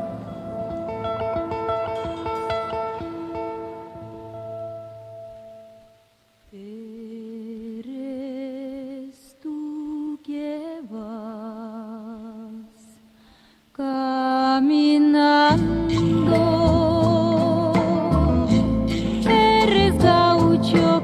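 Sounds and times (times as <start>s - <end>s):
slow solo melody with vibrato: 0.0s - 6.0s.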